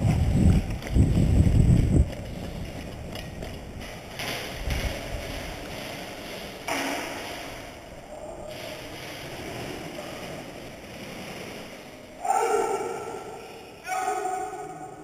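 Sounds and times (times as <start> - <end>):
wind buffeting microphone: 0.0 - 5.8
footsteps on wet concrete: 0.0 - 6.6.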